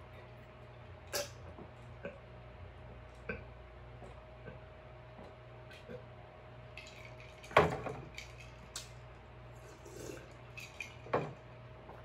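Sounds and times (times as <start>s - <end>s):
person gulping: 9.6s - 10.4s.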